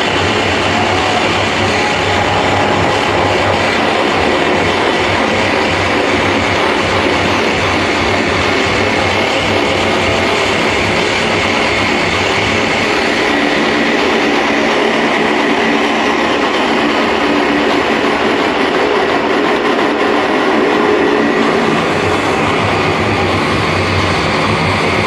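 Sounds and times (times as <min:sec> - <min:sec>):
loud electronic dance music: 0:00.0 - 0:14.9.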